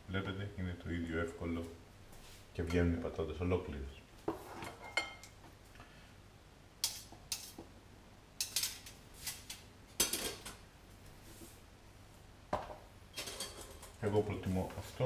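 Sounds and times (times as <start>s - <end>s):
tongs and crockery clattering: 8.4s - 10.6s, 13.1s - 14.0s.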